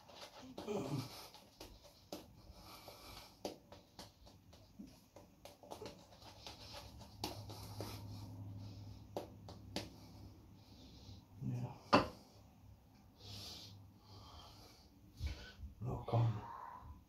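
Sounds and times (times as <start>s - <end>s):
shaving brush swishing lather: 4.8s - 8.5s.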